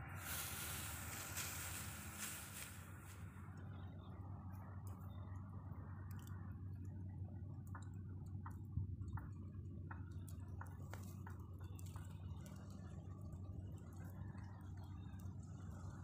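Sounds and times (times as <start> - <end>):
fire crackling: 0.0 - 3.6
steady low hum: 0.0 - 16.0.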